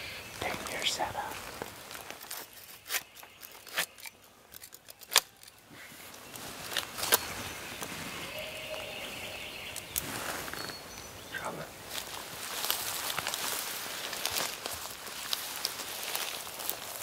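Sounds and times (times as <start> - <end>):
footsteps crunching dry leaves: 0.2 - 4.2, 5.2 - 17.0
twigs snapping: 0.5 - 7.9, 11.9 - 17.0
clothing rustling: 9.8 - 10.9.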